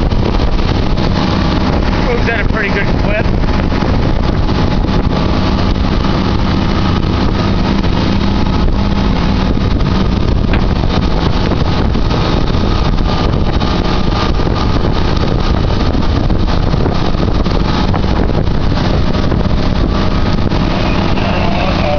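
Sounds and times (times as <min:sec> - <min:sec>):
marine diesel engines running: 0:00.0 - 0:21.9
wind: 0:00.0 - 0:21.9.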